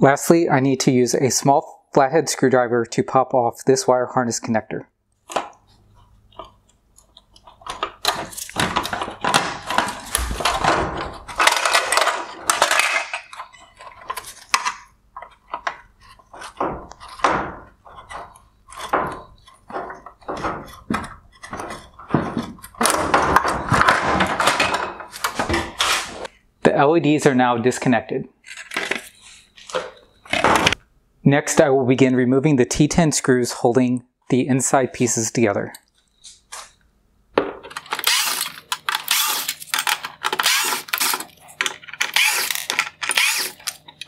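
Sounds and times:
screwdriver prying plastic connectors: 37.7 - 44.0.

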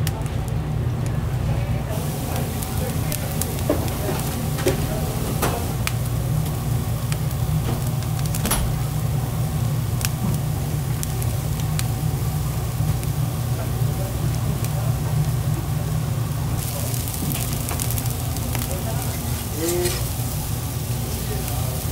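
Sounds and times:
burger patties sizzling on grill: 0.0 - 21.9
steady low rumble: 0.0 - 21.9
fat popping and crackling: 2.3 - 13.6, 16.5 - 21.9.

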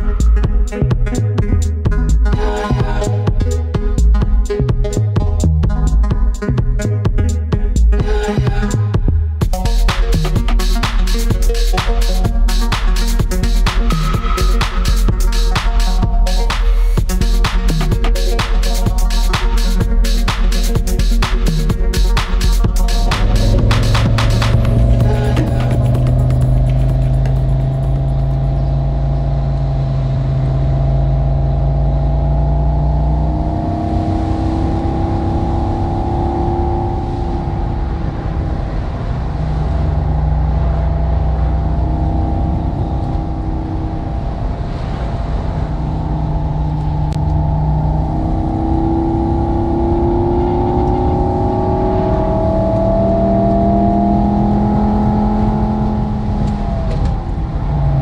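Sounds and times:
simulated sports car engine: 0.0 - 58.0.

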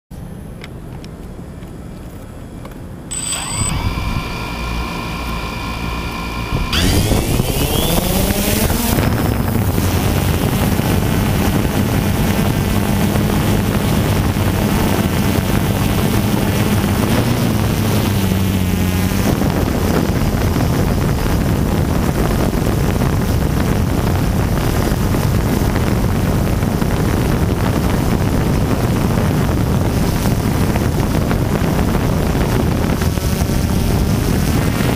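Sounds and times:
drone motors buzzing: 3.1 - 21.9.

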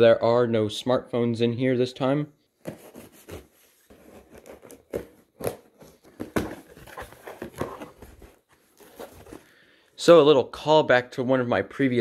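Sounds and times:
cardboard flaps pulled open: 2.8 - 9.5.

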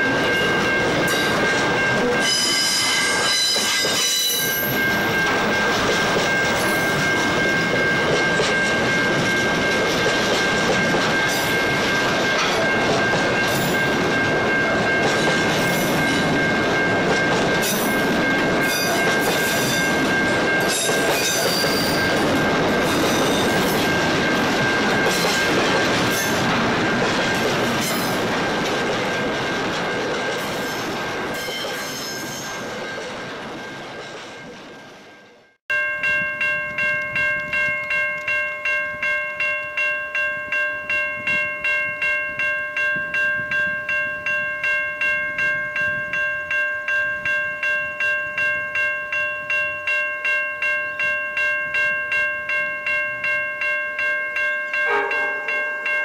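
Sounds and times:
level-crossing warning bell: 0.0 - 56.0
freight wagons wheel squeal: 2.0 - 5.8, 30.5 - 34.4.

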